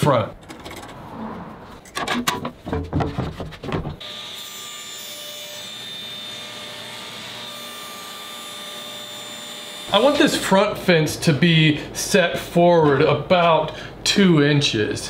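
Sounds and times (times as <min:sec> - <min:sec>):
wood knocking and rubbing: 0:01.8 - 0:04.0
table saw blade whirring: 0:04.0 - 0:10.0.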